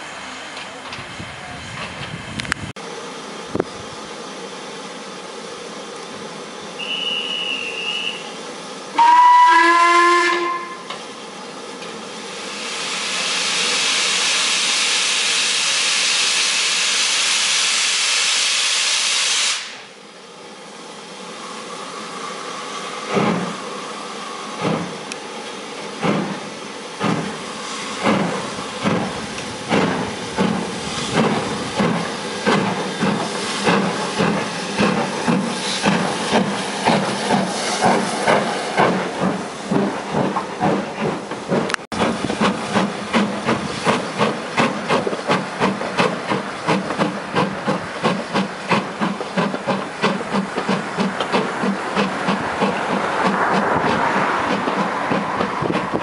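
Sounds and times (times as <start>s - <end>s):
steam hissing: 0.0s - 56.0s
short shrill whistle: 6.8s - 8.4s
steam locomotive whistle: 6.8s - 11.0s, 12.6s - 19.9s
locomotive exhaust chuffs: 25.9s - 56.0s.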